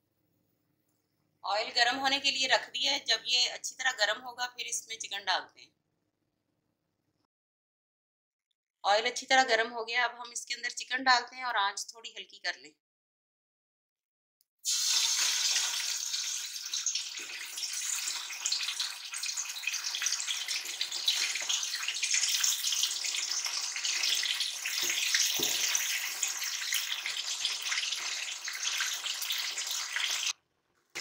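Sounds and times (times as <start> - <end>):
chicken sizzling in hot oil: 14.6 - 30.4.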